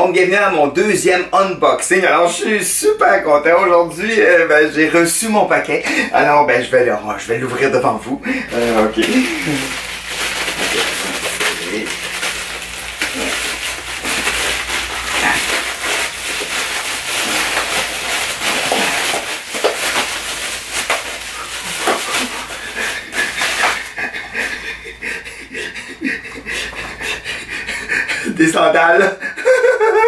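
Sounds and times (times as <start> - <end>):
plastic packaging crinkling and tearing: 8.5 - 24.6.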